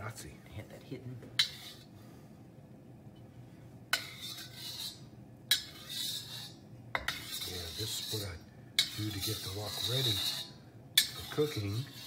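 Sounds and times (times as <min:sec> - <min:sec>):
metal spatula clinking and scraping wok: 0:04.0 - 0:12.0.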